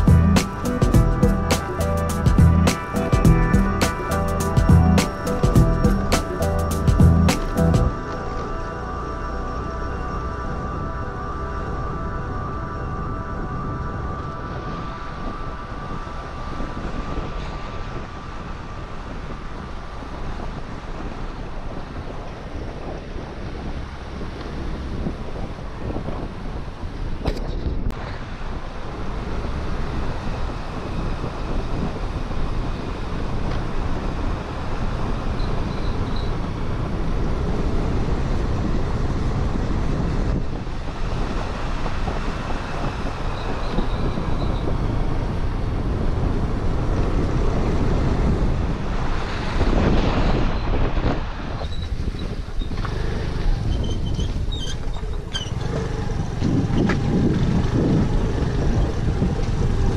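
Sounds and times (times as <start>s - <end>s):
scooter engine: 0.0s - 11.4s, 51.7s - 59.9s
wind on microphone: 9.4s - 59.9s.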